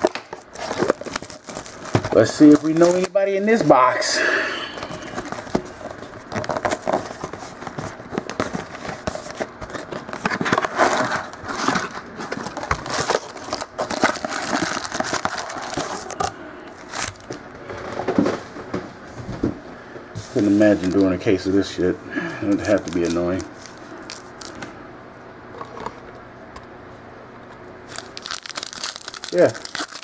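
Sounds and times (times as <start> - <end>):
cards rustling and clicking: 0.0 - 3.9, 4.7 - 17.4, 20.3 - 21.2, 22.4 - 24.7
foil wrappers crinkling and tearing: 0.0 - 4.0, 4.7 - 17.4, 20.3 - 21.8, 22.4 - 24.6, 27.9 - 30.0.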